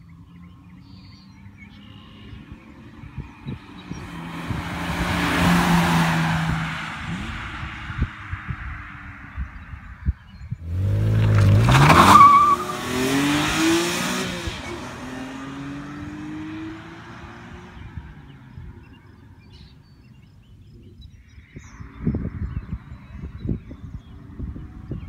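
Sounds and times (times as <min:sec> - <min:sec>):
car accelerating hard past: 0:03.6 - 0:09.3.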